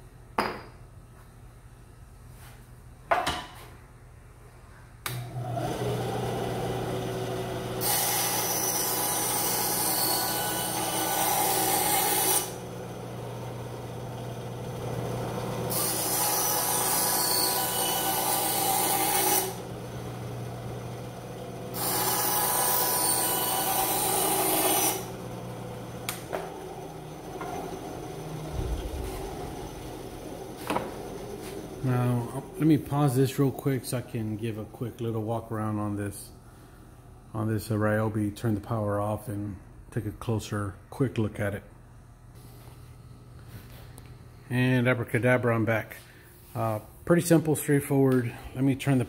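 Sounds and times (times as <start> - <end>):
bandsaw running: 5.3 - 34.7
saw blade rasping through wood: 15.7 - 19.6, 21.8 - 25.1.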